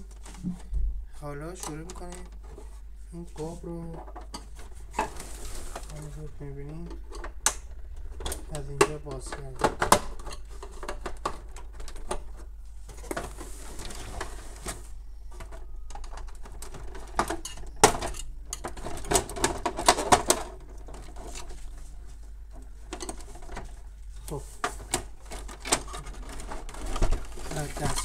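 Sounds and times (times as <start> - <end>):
plastic scraping: 1.5 - 28.0
plastic panels clicking and snapping: 6.8 - 13.3, 15.3 - 21.6.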